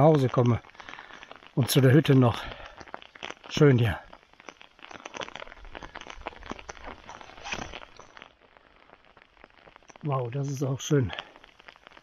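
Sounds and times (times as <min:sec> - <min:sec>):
footsteps crackling: 0:00.0 - 0:12.0.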